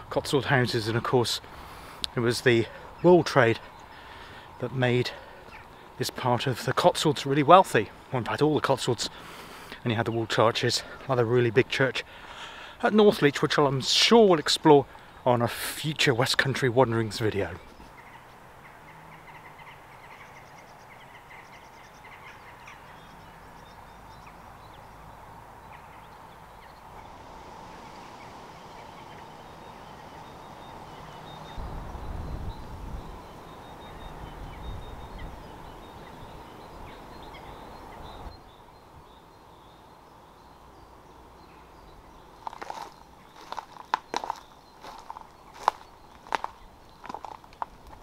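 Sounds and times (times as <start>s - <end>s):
faint bird calls: 17.6s - 47.5s
steady hiss: 26.3s - 33.7s
wind buffeting microphone: 31.4s - 33.3s, 34.0s - 38.4s
footsteps: 42.4s - 48.0s.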